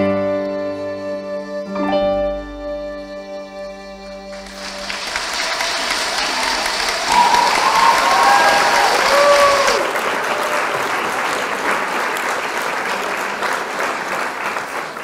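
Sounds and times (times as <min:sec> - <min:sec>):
audience applauding: 0:04.3 - 0:15.0
voices cheering: 0:04.4 - 0:15.0.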